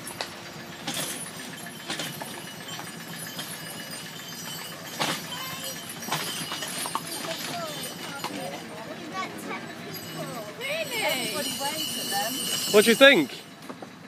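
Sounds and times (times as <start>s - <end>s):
sharp clinks: 0.0s - 13.7s
harness bells jingling: 0.0s - 14.0s
hooves clopping: 0.0s - 14.0s.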